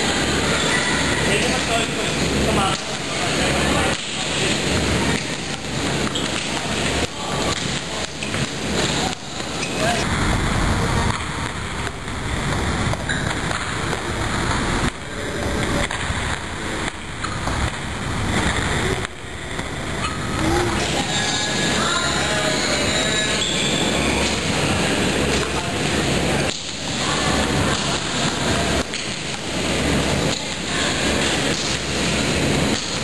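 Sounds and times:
steady rushing noise: 0.0s - 33.0s.

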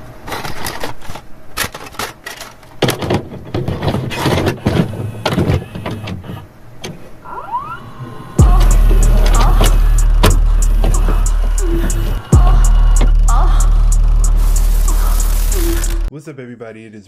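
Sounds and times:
mechanical whirring: 3.6s - 16.1s
short rising sweeps: 7.3s - 16.1s
loud low hum: 7.9s - 16.1s
glitchy clicks and crackles: 8.4s - 16.1s.

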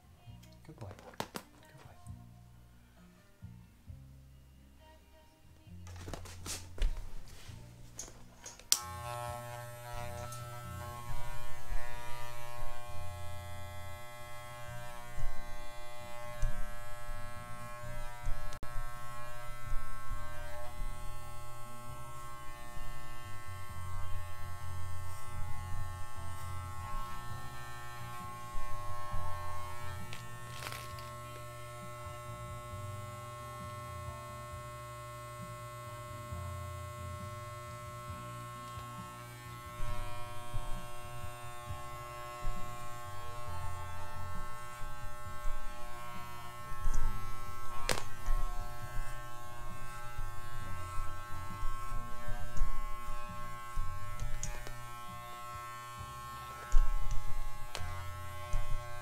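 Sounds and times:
electric clippers buzzing: 5.9s - 59.0s.

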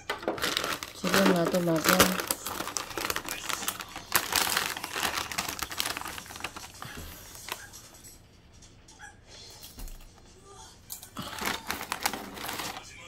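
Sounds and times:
plastic bag crinkling: 0.0s - 7.8s, 11.2s - 13.0s.

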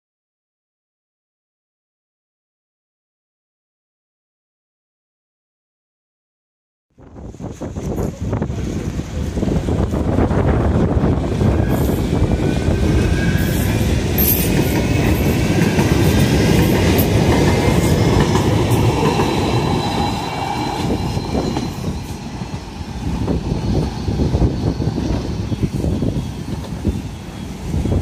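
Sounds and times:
tram wheels rumbling on rail: 7.0s - 28.0s.

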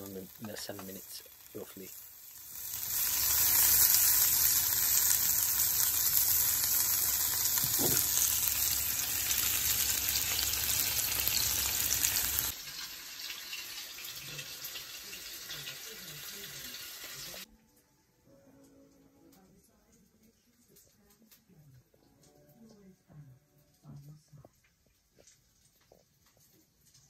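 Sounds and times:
food sizzling in frying pan: 0.0s - 17.5s.

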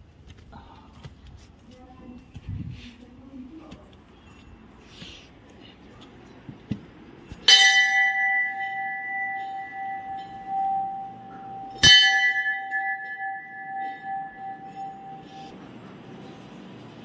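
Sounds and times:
temple bell ringing: 7.2s - 16.9s.

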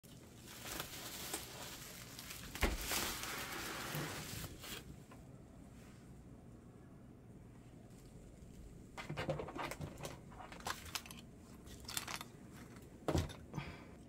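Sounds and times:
bubble wrap crinkling: 0.0s - 5.0s, 9.5s - 12.9s.

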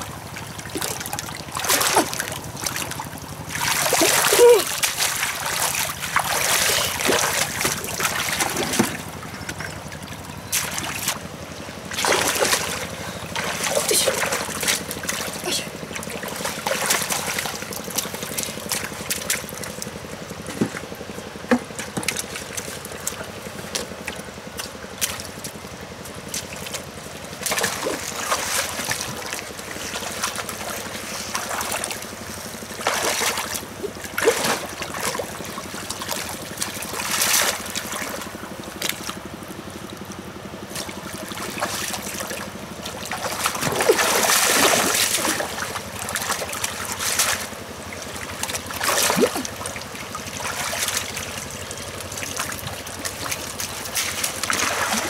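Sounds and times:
scoop splashing in muddy water: 0.0s - 55.0s
water pump engine hum: 0.0s - 55.0s.

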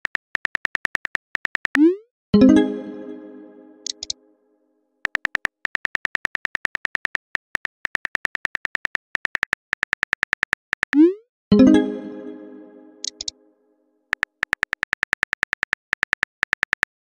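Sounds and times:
chime: 2.4s - 4.0s, 11.5s - 13.2s
keyboard typing clicks: 3.8s - 4.2s, 5.0s - 11.1s, 13.0s - 13.4s, 14.1s - 17.0s.

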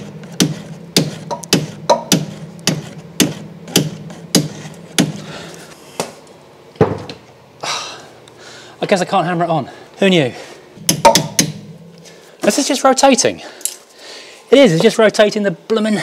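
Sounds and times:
hammer striking metal socket: 10.9s - 11.6s.

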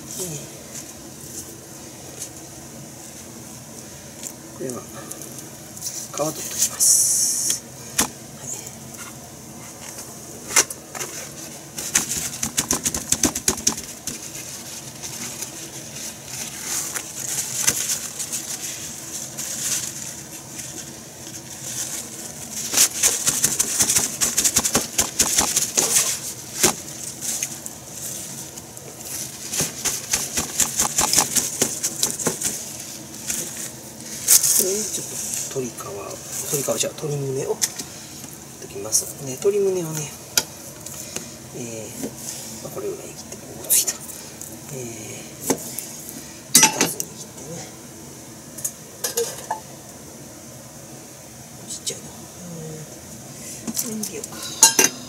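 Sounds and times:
paper towels rustling: 11.0s - 38.2s.

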